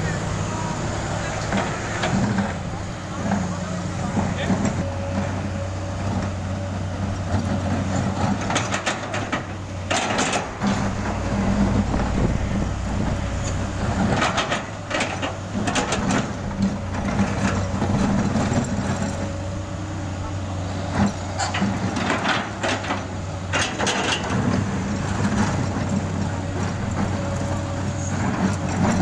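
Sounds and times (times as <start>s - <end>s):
diesel engine running: 0.0s - 29.0s.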